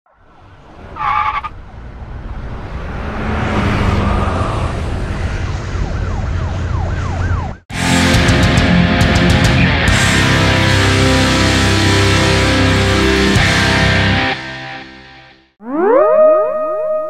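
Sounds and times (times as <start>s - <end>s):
traffic rumble: 0.1s - 7.7s
emergency siren yelping: 4.8s - 7.6s, 15.6s - 17.0s
heavy rock music with guitar: 7.7s - 15.5s.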